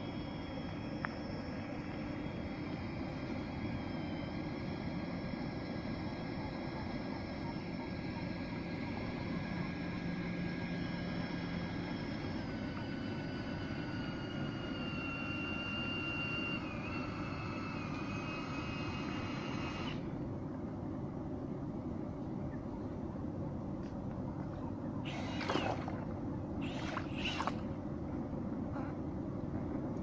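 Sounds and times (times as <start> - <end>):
thruster motor whining: 0.0 - 20.3, 25.0 - 27.8.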